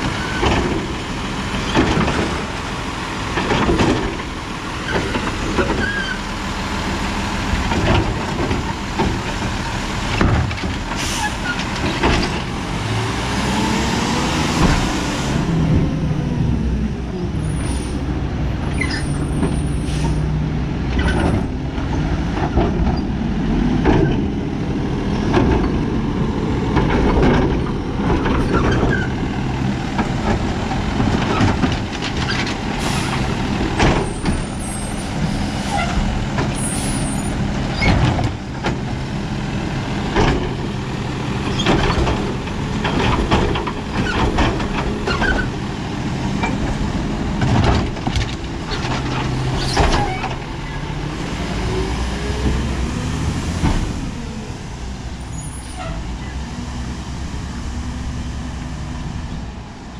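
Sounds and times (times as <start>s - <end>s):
garbage truck diesel engine: 0.0s - 59.9s
metal clanks and knocks: 3.3s - 4.3s, 7.6s - 10.9s, 46.4s - 50.4s
air brake hisses: 19.7s - 20.2s.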